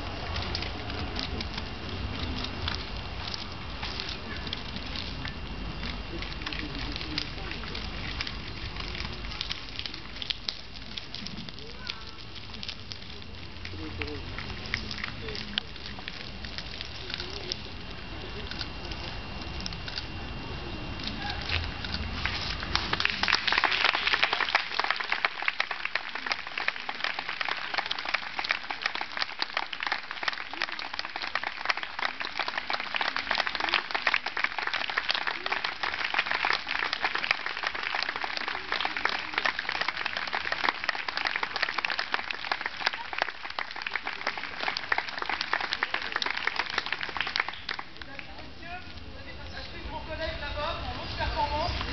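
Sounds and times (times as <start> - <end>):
audience applauding: 22.2 - 48.3.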